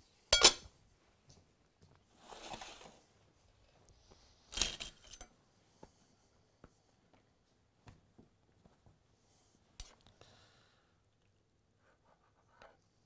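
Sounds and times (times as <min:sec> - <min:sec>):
soft rustle of handling: 0:00.0 - 0:10.2
metal ladle clanking on pot: 0:00.4 - 0:00.7.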